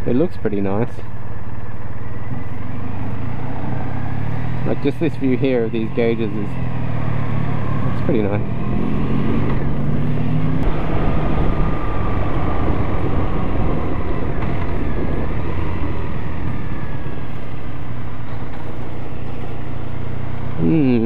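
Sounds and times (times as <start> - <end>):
motorcycle engine running: 1.2 - 21.0
wind noise on microphone: 8.5 - 18.7.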